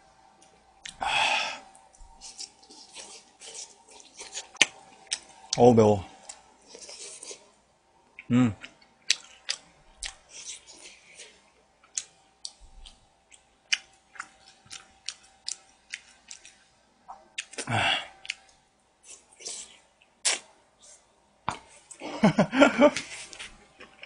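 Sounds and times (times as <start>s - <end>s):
person chewing and smacking: 0.4s - 1.0s, 1.7s - 5.6s, 6.2s - 7.4s, 8.2s - 20.5s.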